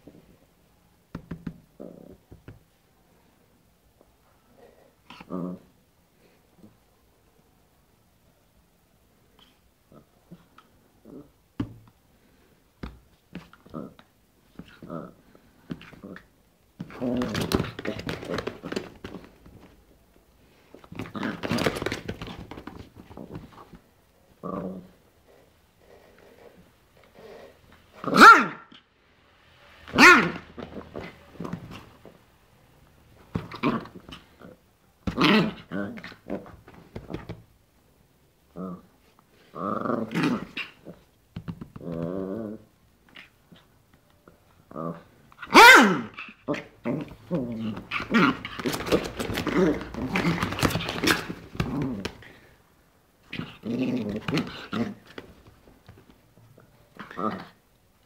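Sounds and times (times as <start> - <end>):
small dog growling and snuffling: 1.8 - 2.2, 4.6 - 5.7, 9.4 - 11.3, 13.7 - 16.3, 24.4 - 27.7, 38.5 - 41.1, 41.8 - 43.7, 44.7 - 45.1, 46.2 - 52.5, 53.2 - 55.2, 56.6 - 57.6
dog barking: 28.1 - 28.7, 29.9 - 30.4, 45.5 - 46.2.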